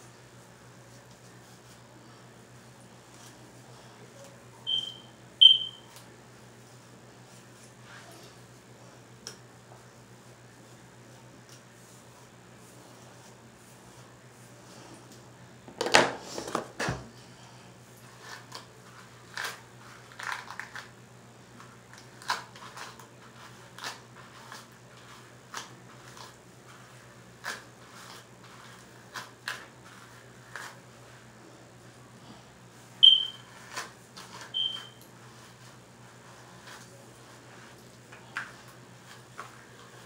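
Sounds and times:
comb rustling through hair: 0:00.8 - 0:04.0, 0:17.9 - 0:31.3, 0:33.1 - 0:40.0
short high beeps: 0:04.7 - 0:05.9, 0:33.0 - 0:33.4, 0:34.6 - 0:35.0.

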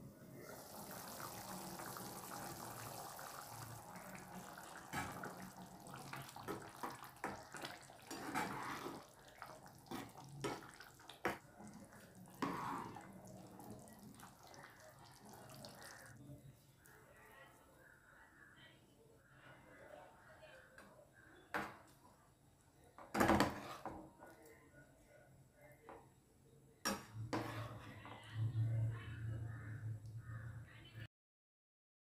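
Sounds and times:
soft simmering hiss: 0:00.0 - 0:18.7
thick sauce bubbling: 0:00.4 - 0:16.2.

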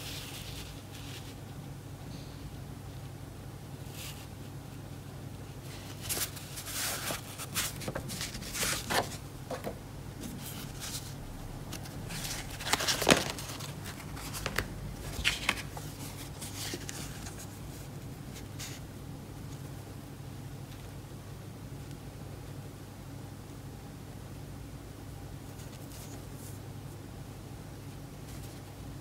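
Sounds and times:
paper rustling: 0:00.0 - 0:01.4, 0:05.6 - 0:18.8, 0:25.5 - 0:26.6, 0:28.2 - 0:28.8.

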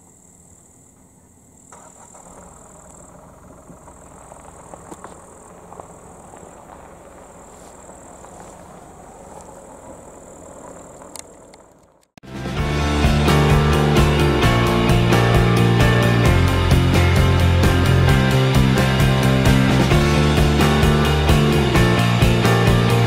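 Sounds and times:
high insect buzz: 0:00.0 - 0:08.7
road traffic rumble: 0:00.9 - 0:23.0.

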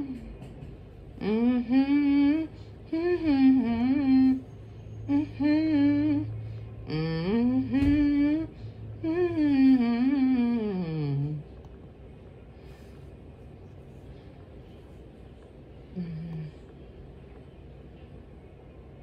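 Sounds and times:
man humming: 0:15.9 - 0:16.7.

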